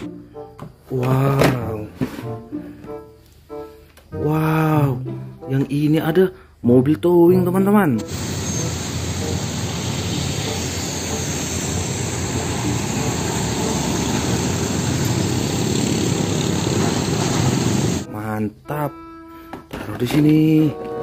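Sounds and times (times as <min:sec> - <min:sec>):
diesel truck driving past: 0:08.0 - 0:18.1
motorbikes passing: 0:08.1 - 0:18.1.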